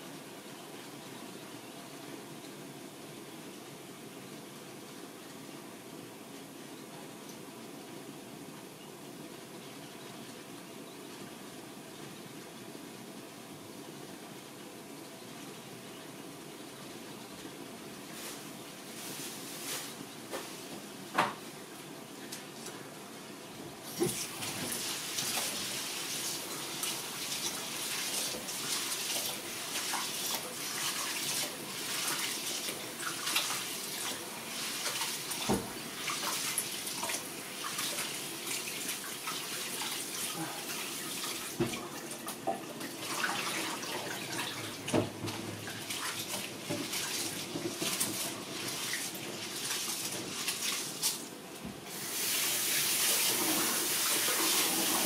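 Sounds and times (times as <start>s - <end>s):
tap water running and splashing: 23.8s - 55.0s.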